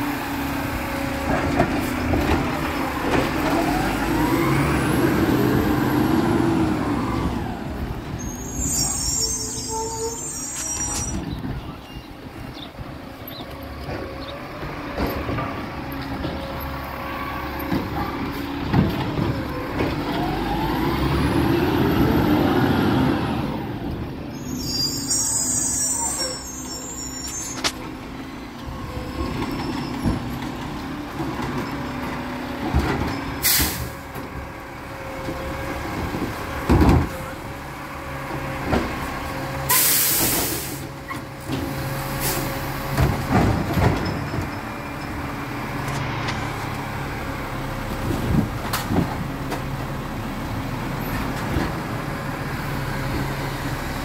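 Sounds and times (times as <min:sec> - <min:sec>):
garbage truck engine revving: 0:00.0 - 0:08.7, 0:13.2 - 0:24.1
air brake hiss: 0:33.4 - 0:33.9, 0:39.7 - 0:40.9.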